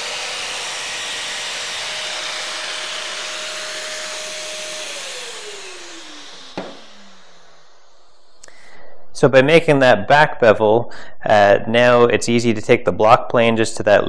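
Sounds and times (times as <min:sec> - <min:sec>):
dust extractor whining: 0:00.0 - 0:08.6
sharp knock: 0:06.6 - 0:06.9.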